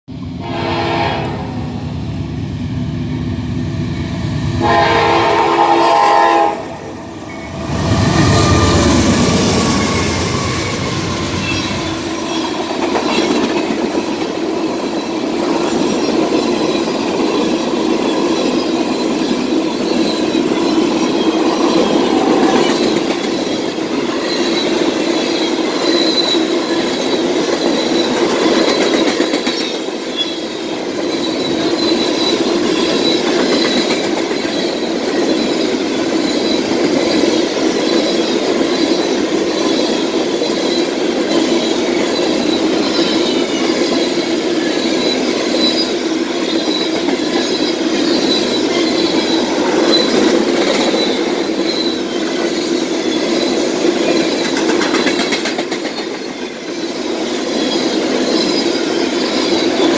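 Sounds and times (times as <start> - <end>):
train horn: 0.4 - 1.8, 4.6 - 7.1
locomotives rumbling past: 0.4 - 56.2
train cars clickety-clack: 4.1 - 59.9.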